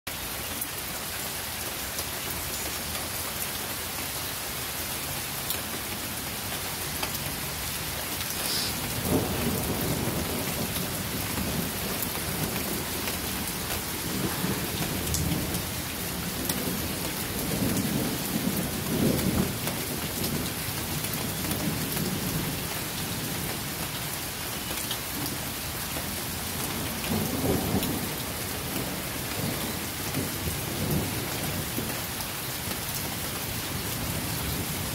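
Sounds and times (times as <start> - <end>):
rain hissing: 0.3 - 24.4
thunder rumbling: 8.2 - 23.5, 26.7 - 31.9.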